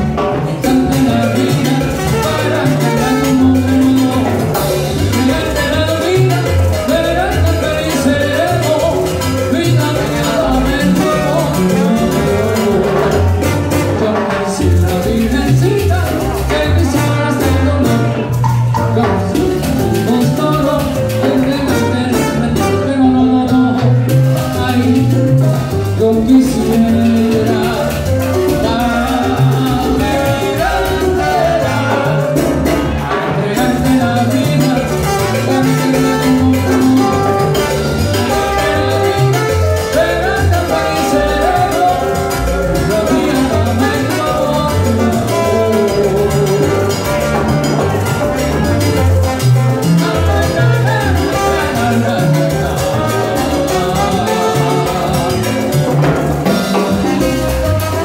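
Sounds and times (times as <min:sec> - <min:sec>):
congas timbales and bongos: 0:00.0 - 0:58.0
latin percussion: 0:00.0 - 0:58.0
salsa band playing: 0:00.0 - 0:58.0
trombone: 0:00.0 - 0:58.0.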